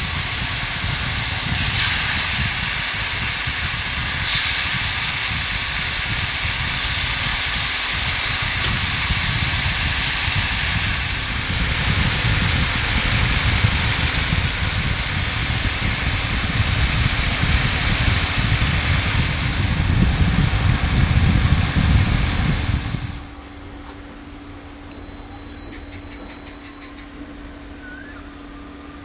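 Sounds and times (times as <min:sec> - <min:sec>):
chicken sizzling in hot oil: 0:00.0 - 0:23.0
steady low hum: 0:00.0 - 0:29.0
cooktop beeps: 0:13.8 - 0:16.8, 0:17.9 - 0:18.9, 0:24.9 - 0:27.1.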